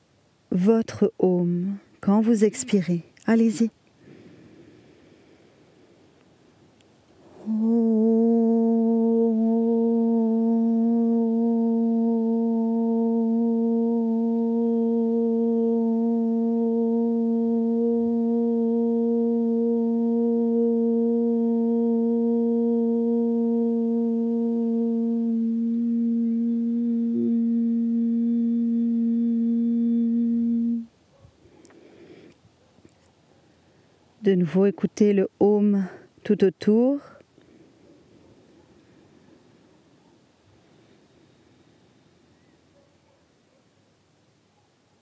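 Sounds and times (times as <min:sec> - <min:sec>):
woman chanting om: 0:00.5 - 0:03.7, 0:07.2 - 0:30.9.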